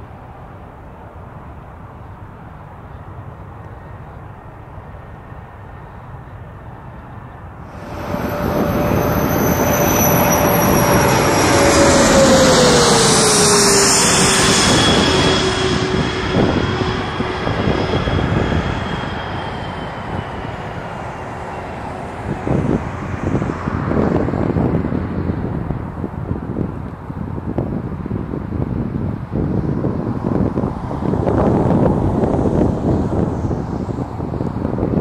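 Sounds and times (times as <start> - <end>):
jet aircraft passing: 3.8 - 27.4, 28.4 - 35.0
wind buffeting microphone: 7.7 - 35.0.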